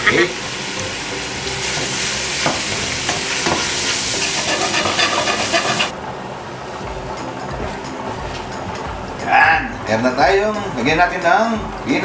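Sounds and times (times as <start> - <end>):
meat sizzling in hot oil: 0.0 - 5.9
wooden spoon stirring and scraping: 3.8 - 5.9.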